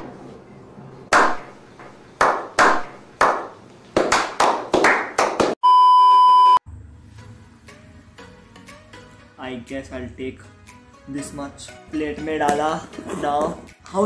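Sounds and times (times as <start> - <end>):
people clapping slowly: 2.2 - 5.6
test-tone beep: 5.6 - 6.6.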